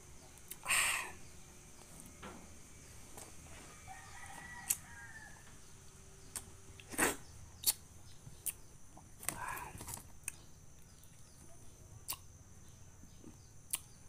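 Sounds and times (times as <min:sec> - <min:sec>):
rooster crowing: 0:03.6 - 0:05.7
mouth clicks and smacks: 0:06.4 - 0:07.8, 0:12.0 - 0:12.3, 0:13.7 - 0:13.9
person sucking and chewing: 0:06.8 - 0:07.8.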